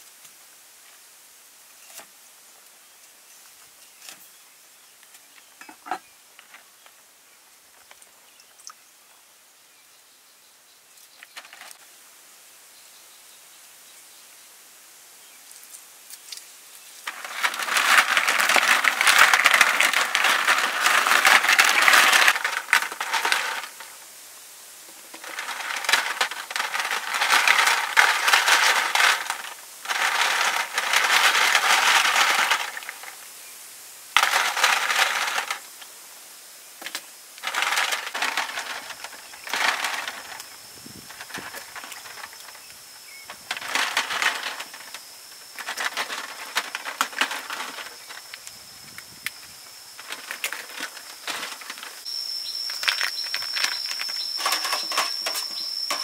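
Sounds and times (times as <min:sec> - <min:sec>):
snail shells clattering on metal tray: 0:17.0 - 0:24.0, 0:24.9 - 0:33.1, 0:34.2 - 0:35.6, 0:36.9 - 0:48.4, 0:50.0 - 0:52.0, 0:52.6 - 0:56.0.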